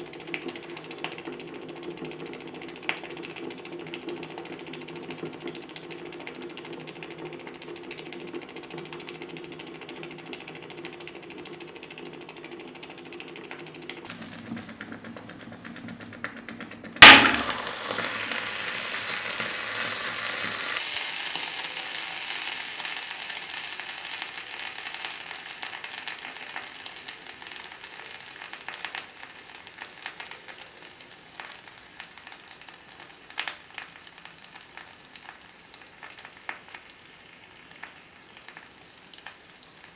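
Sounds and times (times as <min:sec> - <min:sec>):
hot metal hissing and sizzling: 0:14.1 - 0:16.2, 0:17.0 - 0:32.1.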